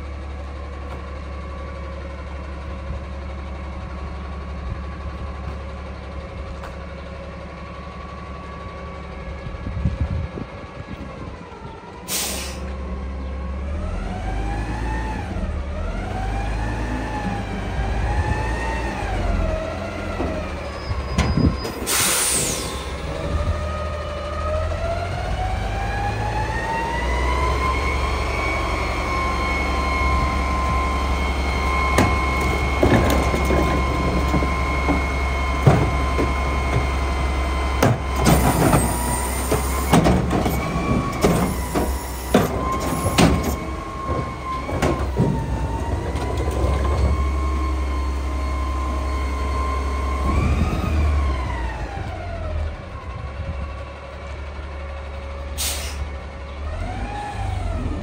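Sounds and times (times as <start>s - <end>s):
garbage truck engine whining: 0.0s - 58.0s
cart knocking and banging: 31.9s - 37.0s, 37.8s - 47.4s.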